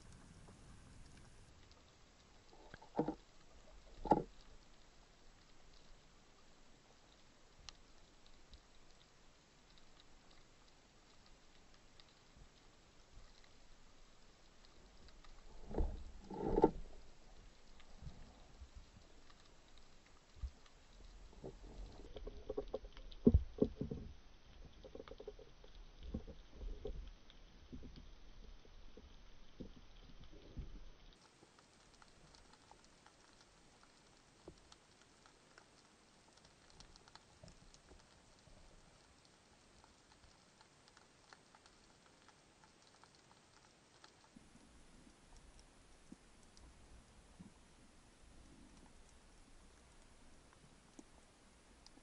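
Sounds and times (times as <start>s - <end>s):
faint crackle of fine clicks: 0.0s - 52.0s
dull underwater knocks and bumps: 2.8s - 3.2s, 4.0s - 4.3s, 15.6s - 17.0s.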